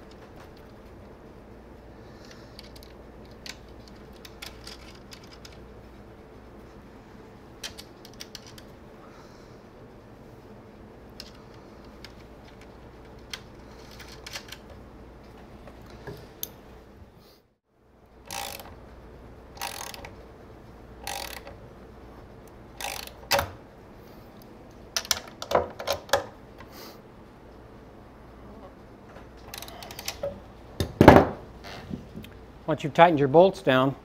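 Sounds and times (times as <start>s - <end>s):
ratchet wrench ratcheting: 18.3s - 18.8s, 19.6s - 20.1s, 21.0s - 21.6s, 22.8s - 23.4s.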